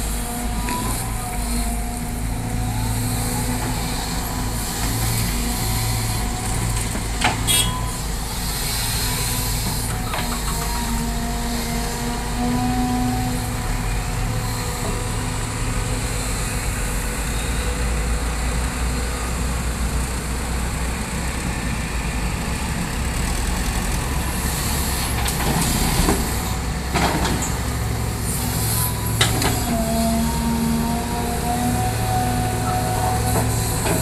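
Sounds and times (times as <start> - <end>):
excavator diesel engine running: 0.0 - 34.0.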